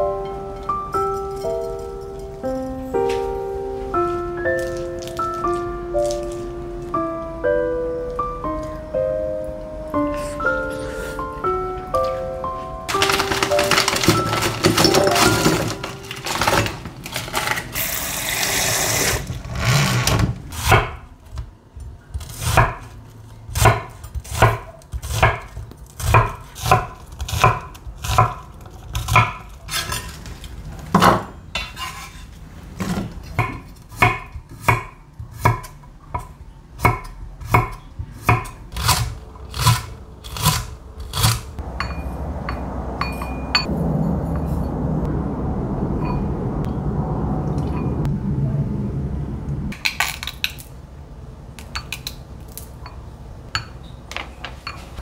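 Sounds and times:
plastic bag crinkling: 12.9s - 19.4s.

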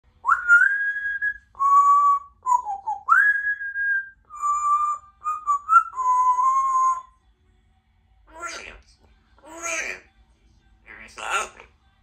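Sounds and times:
parrot whistling: 0.2s - 7.1s.

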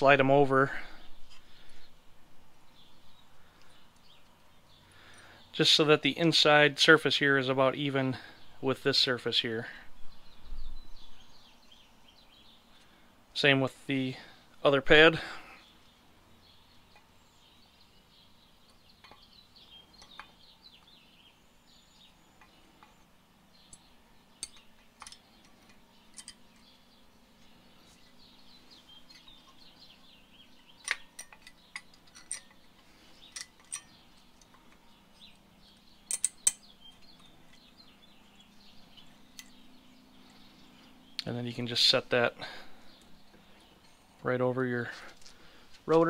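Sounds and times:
faint bird chirping: 0.0s - 46.0s
metallic clicks of brake pads: 18.6s - 21.0s, 23.6s - 26.9s, 30.8s - 37.8s.

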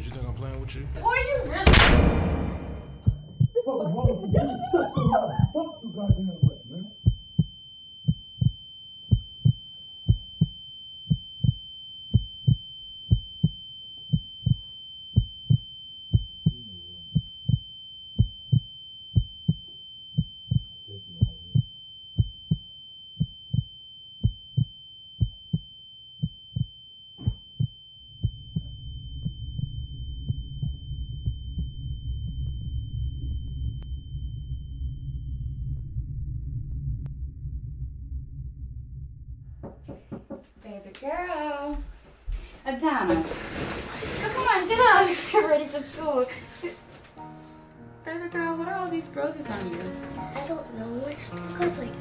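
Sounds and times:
heartbeat thumping: 2.0s - 32.8s, 39.5s - 40.5s
high-pitched ringing tone: 2.4s - 39.4s
low rumbling drone: 28.1s - 40.0s.

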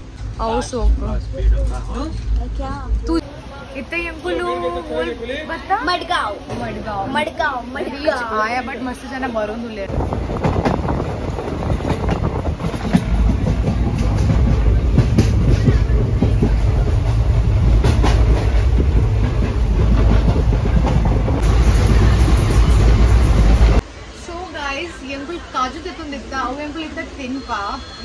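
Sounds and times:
train wheels rumbling on rails: 9.0s - 28.0s.

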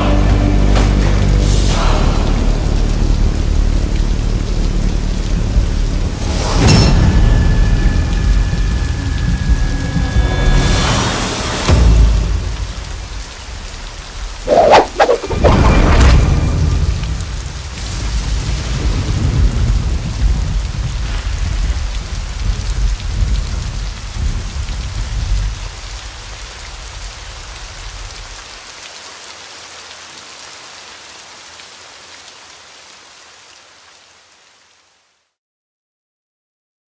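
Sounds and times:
heavy rain pouring: 0.0s - 35.2s
rolling thunder: 14.5s - 25.6s.

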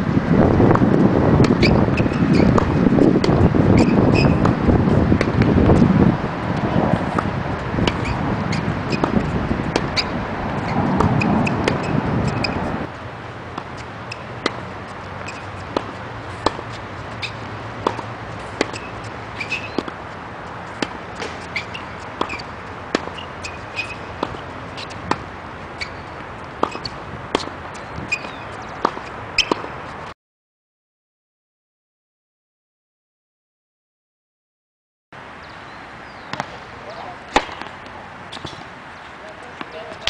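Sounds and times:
rushing noise: 0.0s - 28.1s
tennis ball pops: 36.3s - 36.6s, 37.3s - 37.8s.

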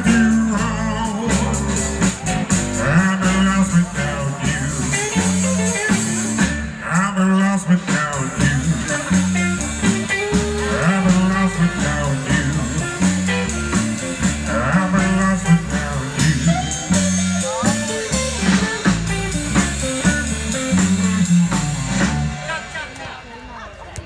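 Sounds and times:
stepping bass line: 0.0s - 22.8s
rock and roll band playing live: 0.0s - 23.0s
drums steady beat: 0.0s - 23.6s.

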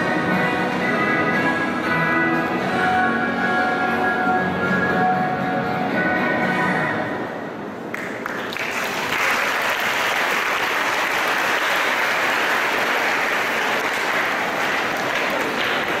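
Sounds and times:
audience applauding: 7.9s - 16.0s.

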